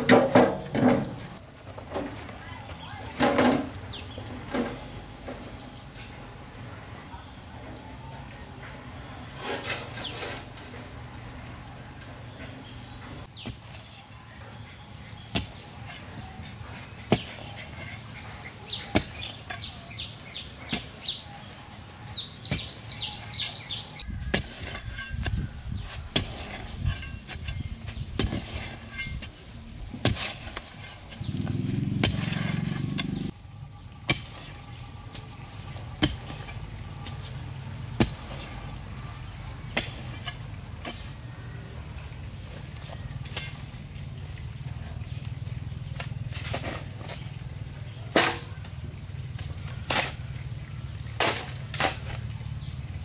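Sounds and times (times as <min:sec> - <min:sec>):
hoe chopping hard soil: 0:22.4 - 0:29.4, 0:30.0 - 0:33.3, 0:34.0 - 0:34.5, 0:36.0 - 0:37.3, 0:37.9 - 0:38.8, 0:39.7 - 0:41.1, 0:48.1 - 0:48.6, 0:51.1 - 0:52.2.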